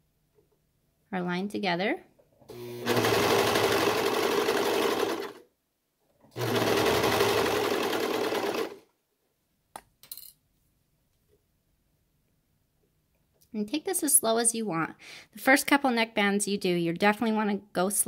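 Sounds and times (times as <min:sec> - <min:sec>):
overlock machine stitching: 0:02.5 - 0:05.5, 0:06.2 - 0:08.8.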